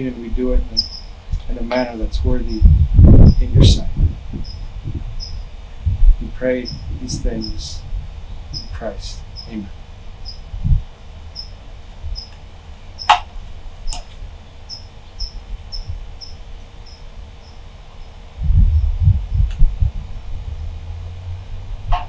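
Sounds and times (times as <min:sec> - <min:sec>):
cricket chirping: 0:00.8 - 0:01.2, 0:10.2 - 0:10.5, 0:11.3 - 0:11.6, 0:12.2 - 0:12.4, 0:14.7 - 0:18.2
sharp clicks: 0:13.0 - 0:13.3, 0:13.9 - 0:14.2
low rumble: 0:18.4 - 0:22.0.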